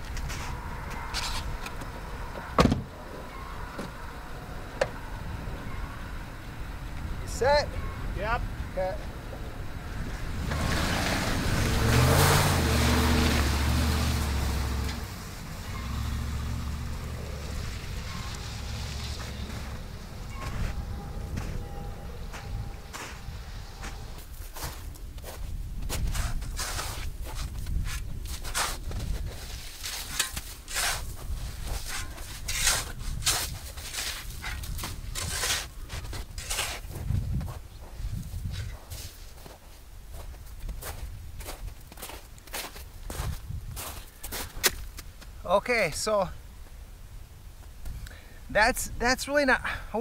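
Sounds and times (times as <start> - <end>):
tyres rushing through snow and mud: 0.0 - 46.4
truck engine revving: 8.6 - 24.2
shovel scraping crusted snow: 17.4 - 24.9, 26.0 - 37.2.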